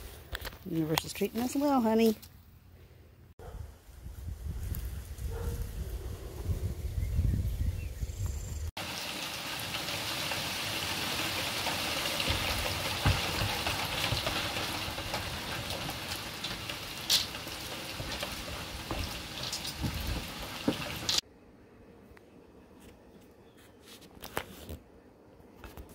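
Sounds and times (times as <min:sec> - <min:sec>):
light rain falling: 0:08.8 - 0:21.2
raindrops tapping: 0:08.8 - 0:21.2.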